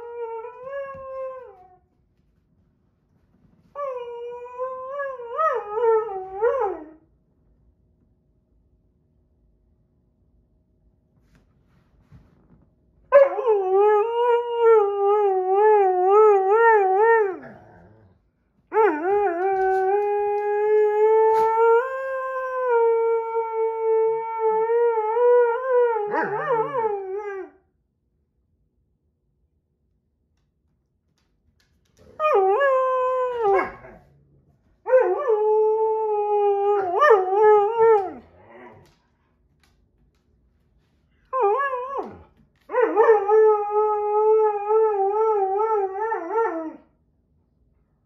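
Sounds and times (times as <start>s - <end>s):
dog howling: 13.2s - 18.0s, 18.7s - 27.6s, 32.1s - 34.2s, 34.8s - 38.9s, 41.3s - 46.8s.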